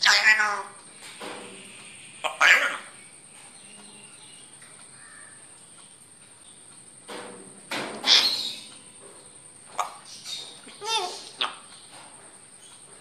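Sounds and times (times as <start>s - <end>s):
parrot squawk: 0.0s - 0.8s, 2.2s - 3.0s, 8.0s - 8.7s, 9.8s - 11.7s
low background hiss: 0.0s - 13.0s.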